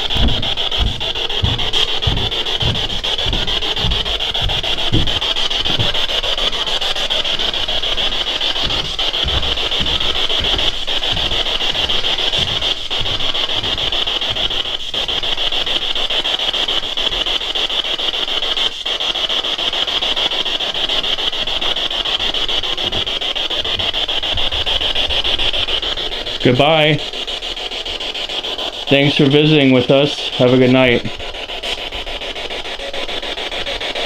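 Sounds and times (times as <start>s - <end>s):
radio static hiss flickering: 0.0s - 27.2s.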